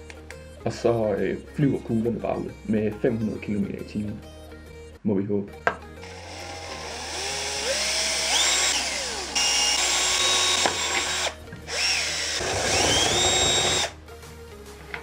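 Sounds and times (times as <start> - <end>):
cordless drill motor whine: 6.0 - 13.9.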